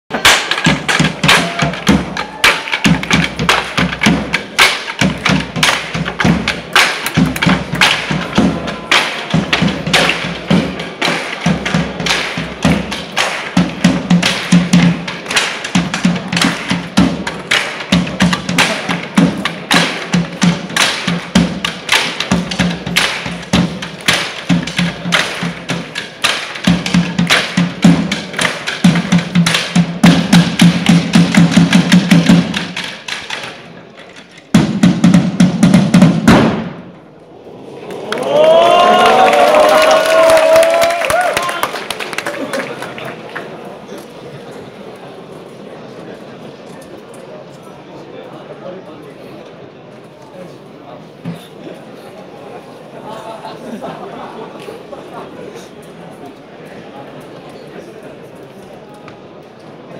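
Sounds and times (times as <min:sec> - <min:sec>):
drumsticks clacking on wooden chairs: 0:00.1 - 0:10.3, 0:14.2 - 0:34.5.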